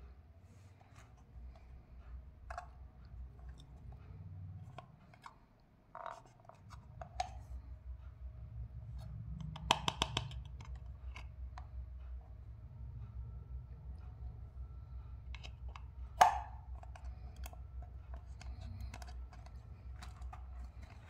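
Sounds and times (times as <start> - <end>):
plastic toy clicks and taps: 9.4 - 11.3, 15.4 - 21.0.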